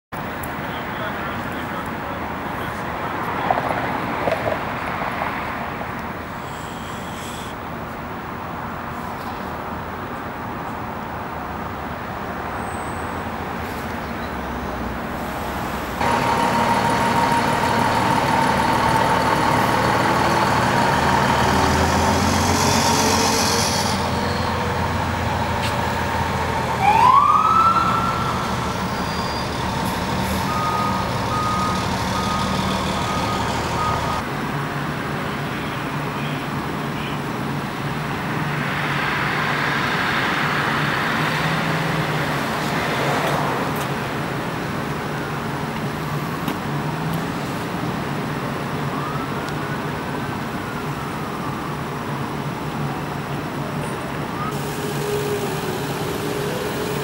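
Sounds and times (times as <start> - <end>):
street traffic: 0.1 - 57.0
fire engine diesel idling: 16.0 - 21.9
siren whoop: 26.8 - 29.0.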